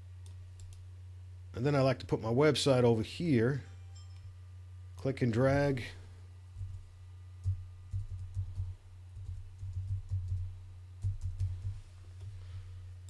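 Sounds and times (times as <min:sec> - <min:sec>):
steady low hum: 0:00.0 - 0:13.0
computer keyboard typing: 0:00.2 - 0:00.8, 0:07.4 - 0:11.7.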